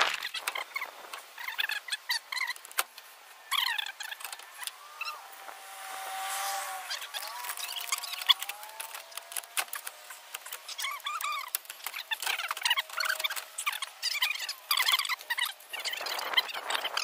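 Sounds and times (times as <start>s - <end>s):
plastic squeaking: 6.8s - 17.0s.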